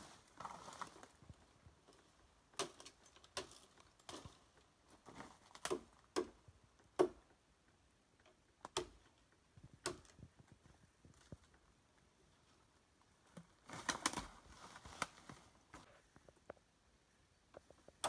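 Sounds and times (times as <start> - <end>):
machete chopping bamboo: 5.6 - 6.4, 7.0 - 7.2, 8.7 - 9.0.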